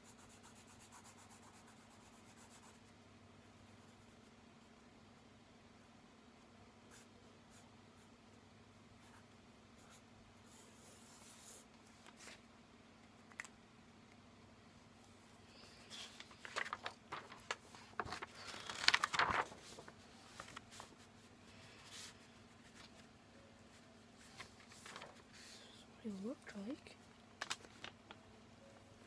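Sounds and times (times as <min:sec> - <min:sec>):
paper rustling and crinkling: 0:15.6 - 0:23.1, 0:24.2 - 0:25.6, 0:27.4 - 0:28.2.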